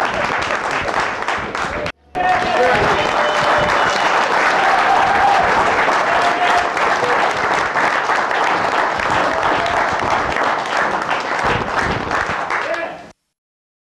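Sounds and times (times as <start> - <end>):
people applauding: 0.0 - 13.1.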